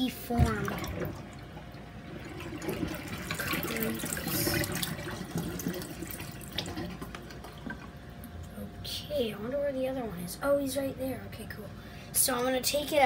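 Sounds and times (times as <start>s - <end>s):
water trickling into steel sink: 0.4s - 8.0s.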